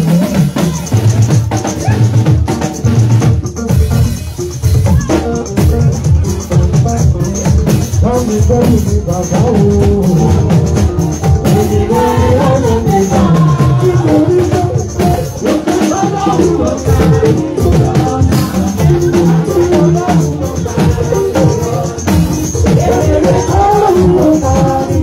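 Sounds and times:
drums and percussion: 0:00.0 - 0:25.0
women's choir singing: 0:11.4 - 0:25.0.

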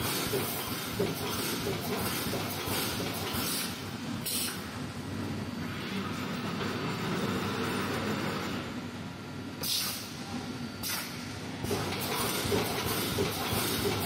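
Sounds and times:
welding machine clatter: 0:00.0 - 0:04.6, 0:09.6 - 0:10.2, 0:10.8 - 0:14.0.

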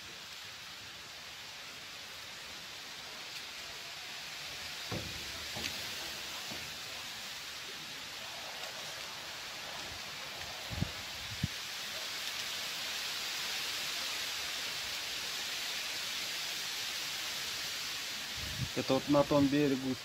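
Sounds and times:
wind through reeds: 0:00.0 - 0:20.0
rippling water: 0:02.0 - 0:20.0
soft low knocks: 0:04.9 - 0:06.8.

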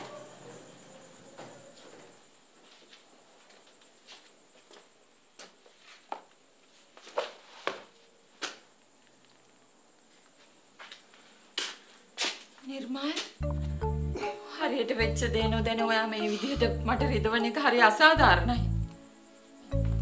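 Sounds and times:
footsteps walking: 0:01.8 - 0:09.4, 0:10.0 - 0:13.4.

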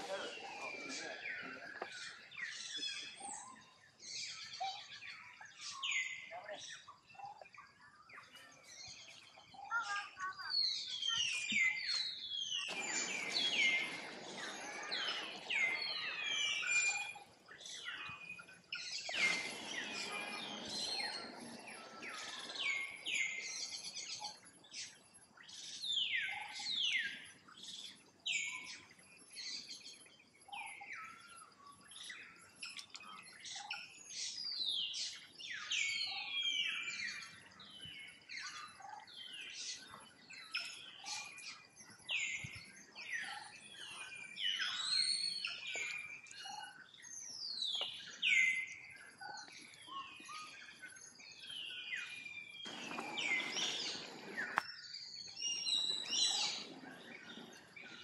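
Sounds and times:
high-pitched falling chirping calls: 0:09.5 - 0:24.3, 0:52.1 - 0:56.8.

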